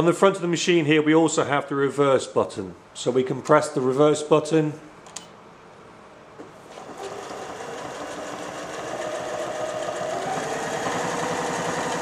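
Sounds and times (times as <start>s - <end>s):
sewing machine sewing: 6.5s - 12.0s.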